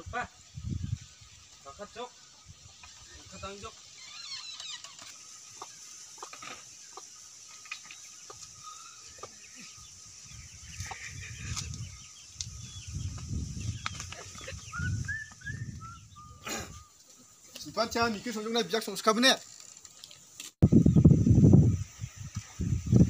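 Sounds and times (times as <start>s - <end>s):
bird chirps: 0.5s - 18.4s
chickens clucking: 4.9s - 12.0s.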